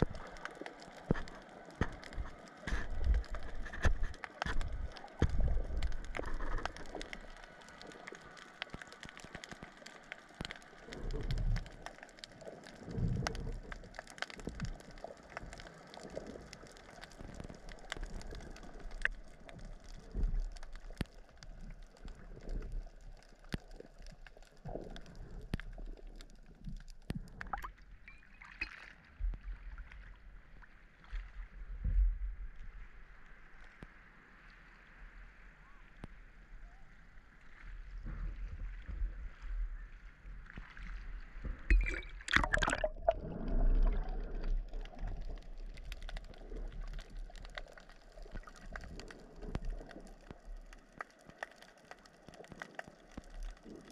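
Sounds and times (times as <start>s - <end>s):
small clicks and crackles: 0.0s - 53.9s
water sloshing: 41.6s - 44.6s.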